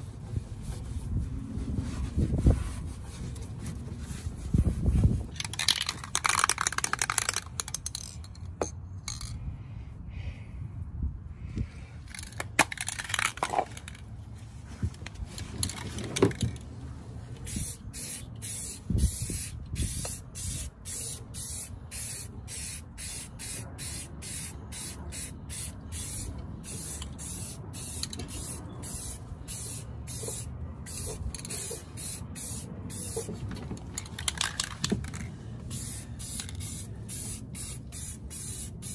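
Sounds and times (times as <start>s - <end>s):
spray paint can hissing: 5.4s - 8.2s, 12.1s - 14.0s, 17.3s - 38.9s.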